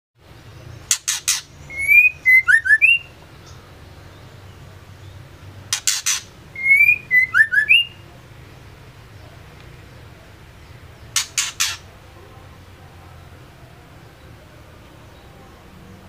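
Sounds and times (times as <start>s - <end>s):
thin high bird chirps: 0.6s - 4.4s, 5.0s - 8.0s, 10.7s - 11.9s
harsh rasping bird notes: 0.8s - 3.6s, 5.6s - 8.0s, 11.0s - 12.0s
bird whistling clear notes: 1.1s - 3.1s, 5.8s - 8.0s.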